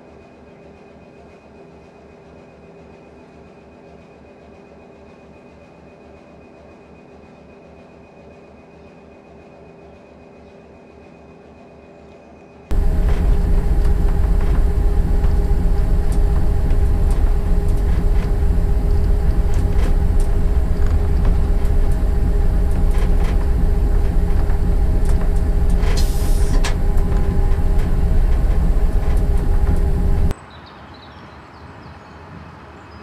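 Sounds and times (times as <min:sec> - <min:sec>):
diesel engine drone: 0:12.7 - 0:30.3
brief hiss: 0:25.8 - 0:26.8.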